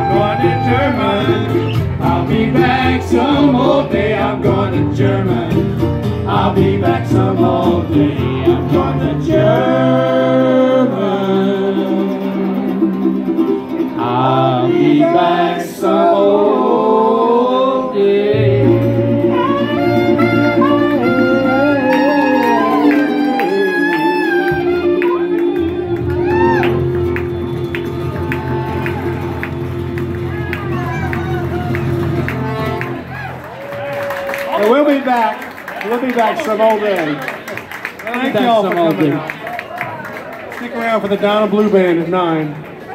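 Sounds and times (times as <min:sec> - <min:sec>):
man singing: 0:00.0 - 0:12.9, 0:14.0 - 0:25.9
strummed acoustic guitars: 0:00.0 - 0:15.8, 0:18.3 - 0:33.4
upright bass: 0:00.0 - 0:16.4, 0:18.0 - 0:33.5
clarinet melody: 0:18.4 - 0:33.2.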